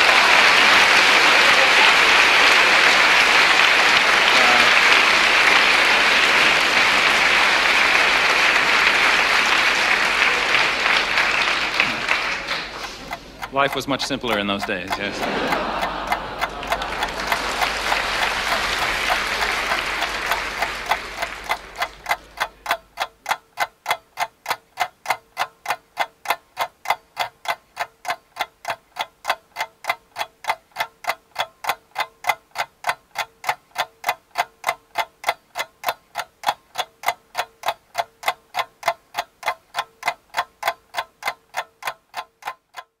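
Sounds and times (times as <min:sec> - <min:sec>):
clock ticking: 0:00.0 - 0:06.0, 0:09.2 - 0:43.0
audience applause: 0:00.0 - 0:22.6.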